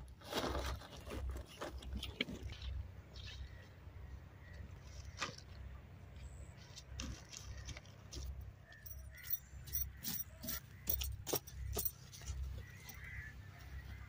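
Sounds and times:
hands digging in stony soil: 0.0s - 2.8s.

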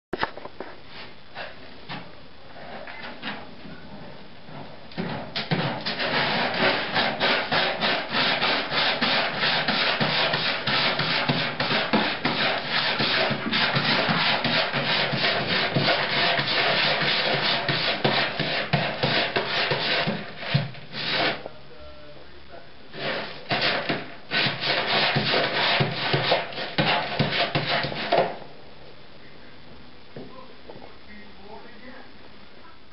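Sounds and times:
cat scratching in litter box: 5.0s - 21.4s, 22.9s - 28.4s.

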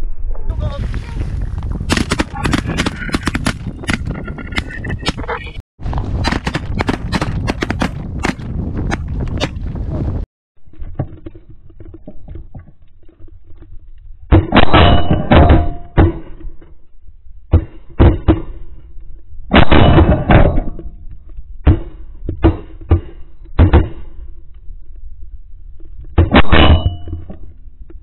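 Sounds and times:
faint wind: 0.0s - 28.0s
shotgun shots: 1.9s - 4.0s, 6.2s - 8.4s.

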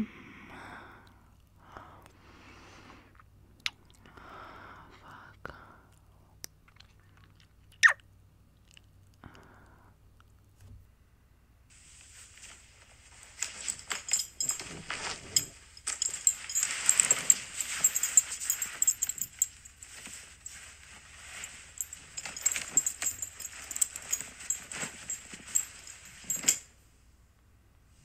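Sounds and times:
wet kissing sounds: 7.7s - 8.0s.

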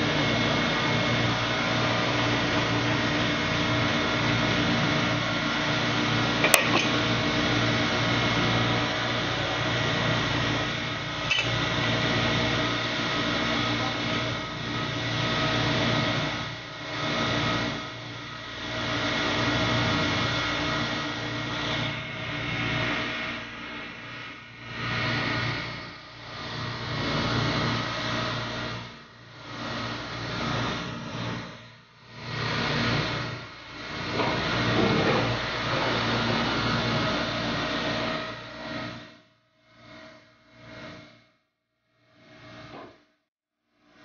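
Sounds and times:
drilling rig machinery hum: 0.0s - 39.2s
metal clank: 6.4s - 7.0s.

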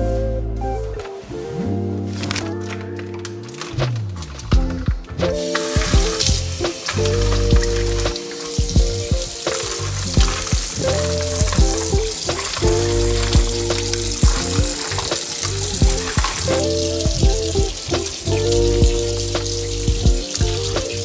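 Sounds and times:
background music with a beat: 0.0s - 21.0s
food sizzling in a pan: 5.4s - 21.0s.

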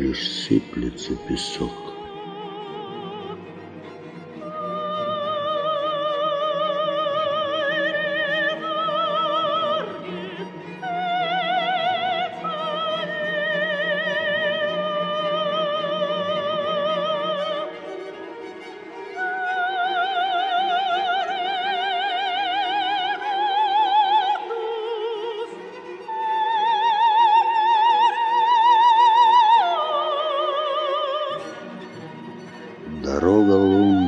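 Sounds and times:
soprano voice singing wordless notes: 0.6s - 3.8s, 4.4s - 17.7s, 32.9s - 34.0s.

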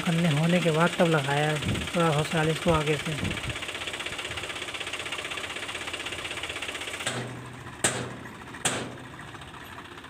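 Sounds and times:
tractor diesel engine running: 0.0s - 10.0s
sharp knocks: 7.0s - 9.2s.

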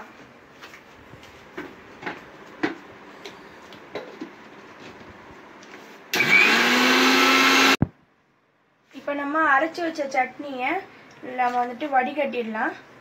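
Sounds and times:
mixer grinder motor whirring: 6.1s - 7.9s.

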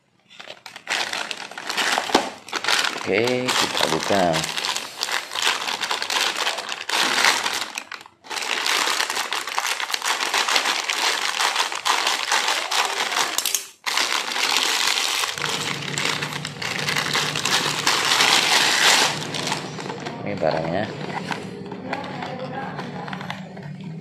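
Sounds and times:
plastic mailer bag crinkling: 0.0s - 23.7s
scissors cutting plastic: 0.3s - 24.0s
steady low hum: 15.3s - 24.0s.

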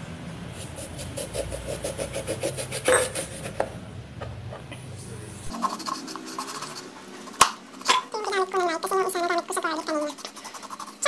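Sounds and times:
knife sawing through lemon: 0.6s - 3.6s, 5.5s - 11.0s.

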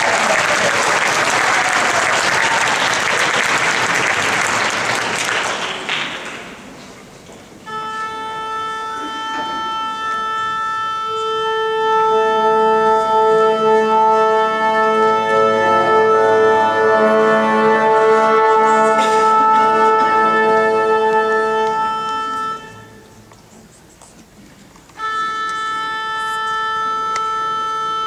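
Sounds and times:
wind instrument holding a note: 7.6s - 23.2s, 25.0s - 28.0s.

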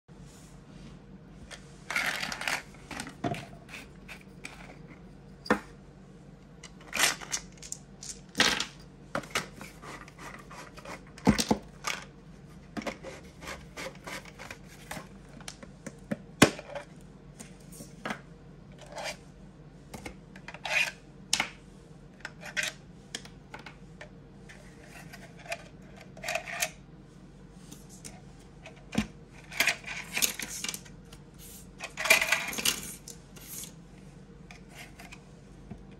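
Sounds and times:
plastic parts clicking and rattling: 1.9s - 4.8s, 31.8s - 33.7s.

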